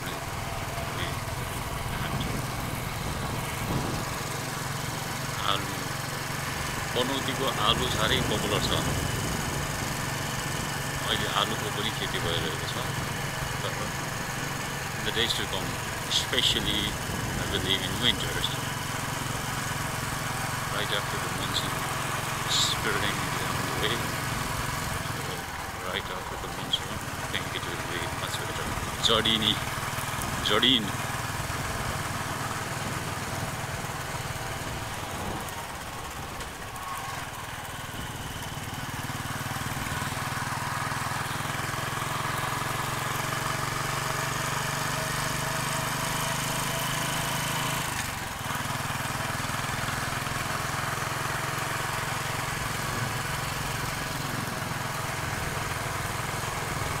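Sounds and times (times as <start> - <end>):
motorcycle engine running: 0.0 - 57.0
road noise: 0.0 - 57.0.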